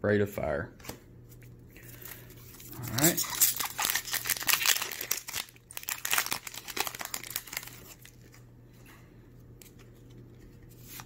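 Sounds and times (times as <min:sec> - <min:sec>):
wrapper crinkling and tearing: 0:02.5 - 0:08.4.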